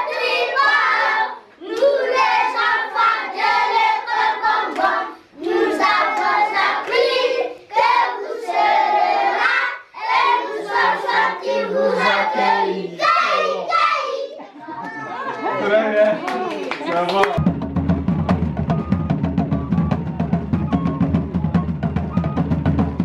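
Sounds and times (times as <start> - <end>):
children singing in unison: 0.0 - 14.4.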